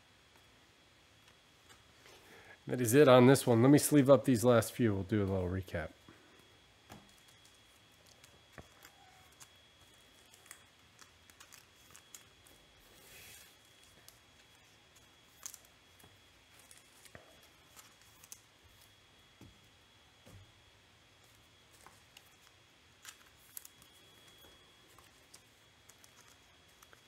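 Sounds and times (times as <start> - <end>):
cards clicking and rustling: 6.9 - 19.0, 21.3 - 27.0.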